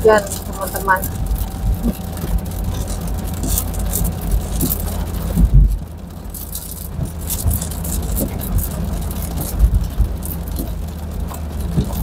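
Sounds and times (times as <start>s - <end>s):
car engine and tyres rumbling: 0.0s - 12.0s
low thump: 5.4s - 5.8s.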